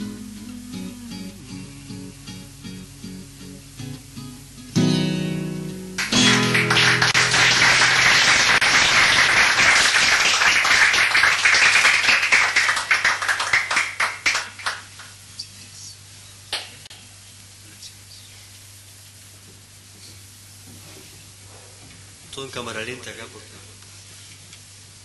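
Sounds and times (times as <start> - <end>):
acoustic guitar playing: 0.0 - 9.2
audience applause: 6.0 - 15.2.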